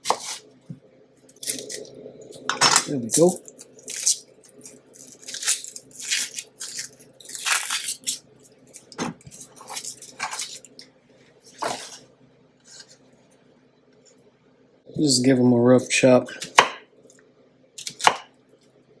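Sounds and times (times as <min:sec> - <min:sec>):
onion skin crackling: 0:01.3 - 0:02.0, 0:02.9 - 0:10.8.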